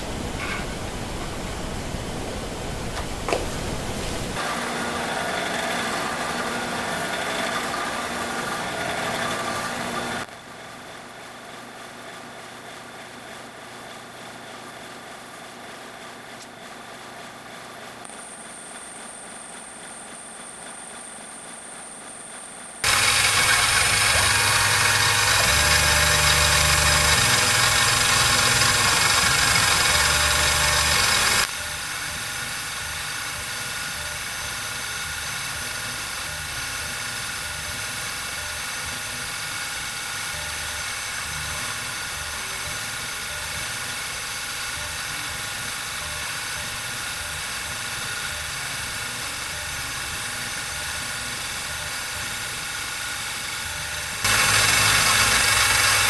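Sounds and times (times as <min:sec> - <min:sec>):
mill spindle motor cutting metal: 0:04.3 - 0:10.3, 0:17.6 - 0:56.0.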